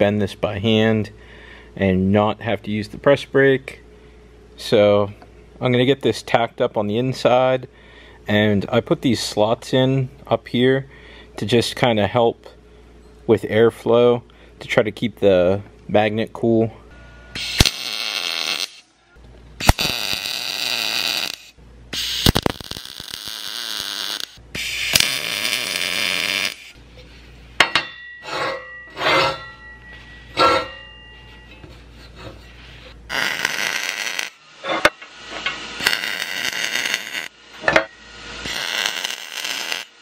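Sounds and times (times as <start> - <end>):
welder crackling hiss: 17.4 - 18.9, 19.6 - 26.8, 33.1 - 40.0
steel parts clinking: 27.6 - 36.9, 37.6 - 38.0.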